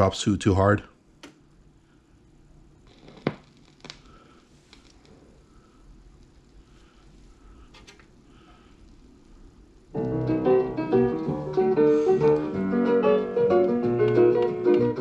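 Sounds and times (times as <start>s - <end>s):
piano music from a record: 9.9s - 15.0s.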